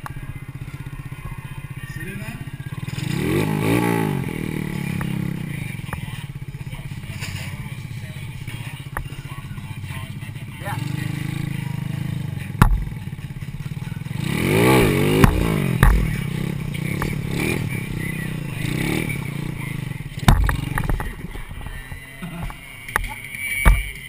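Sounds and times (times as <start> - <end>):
motorcycle engine revving: 0.0 - 24.0
sharp knocks and clatter: 12.6 - 13.0, 20.2 - 21.1.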